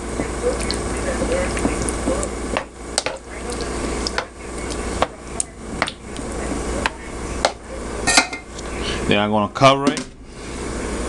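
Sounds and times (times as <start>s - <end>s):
sauce bubbling: 0.0s - 5.0s.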